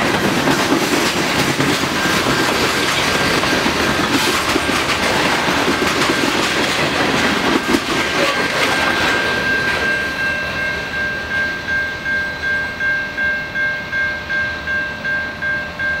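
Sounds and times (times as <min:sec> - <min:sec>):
train wheels clattering over joints: 0:00.0 - 0:10.6
crossing bell ringing: 0:00.0 - 0:16.0.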